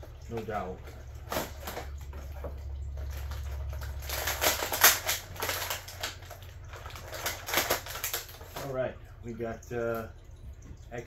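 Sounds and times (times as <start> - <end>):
packaging crackling: 3.0 - 8.7
low hum: 8.9 - 11.0.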